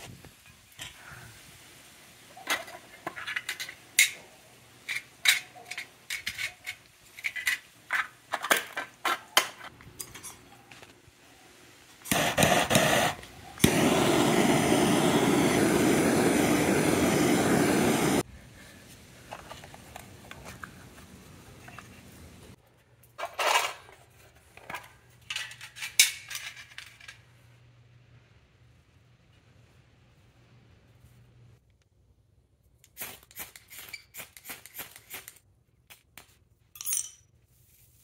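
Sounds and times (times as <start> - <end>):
gas torch flame hissing: 12.0 - 18.3.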